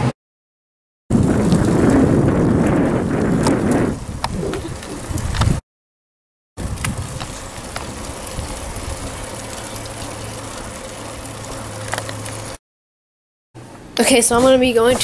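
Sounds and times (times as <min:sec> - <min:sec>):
bicycle road noise: 0:01.1 - 0:05.6, 0:06.6 - 0:12.6
wind rumble: 0:01.1 - 0:05.6, 0:06.6 - 0:12.5.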